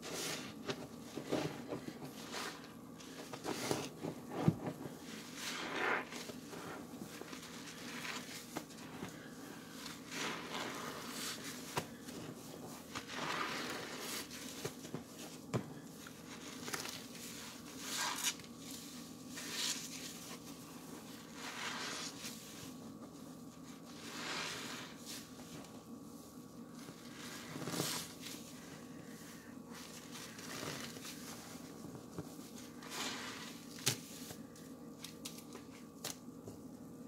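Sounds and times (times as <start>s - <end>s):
soapy sponges squelching: 1.2s - 15.0s, 16.2s - 23.1s, 23.9s - 25.3s.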